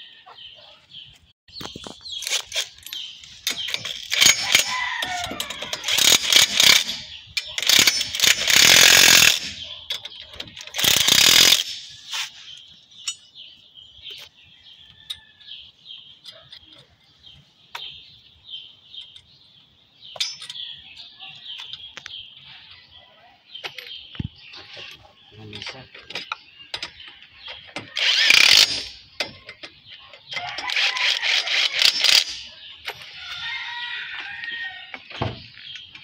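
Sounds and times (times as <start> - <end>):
power tool bursts: 3.5 - 7.0, 7.6 - 9.6, 10.7 - 12.3, 27.9 - 29.0, 30.6 - 32.4.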